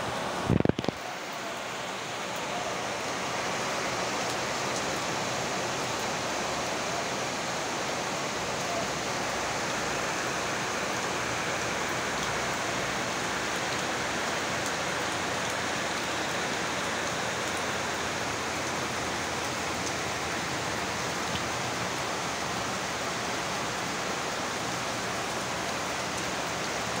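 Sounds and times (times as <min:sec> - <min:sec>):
heavy rain hissing: 0:00.0 - 0:27.0.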